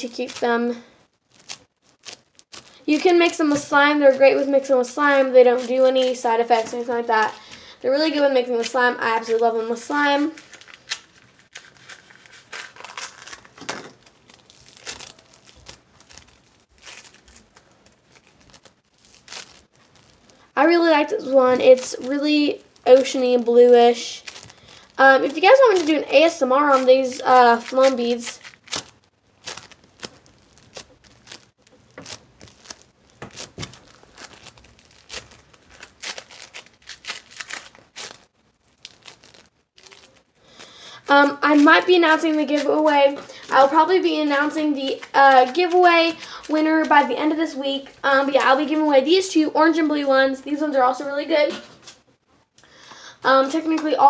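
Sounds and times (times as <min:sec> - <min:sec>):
slime crackling when squeezed: 0:00.0 - 0:07.3, 0:07.9 - 0:48.8.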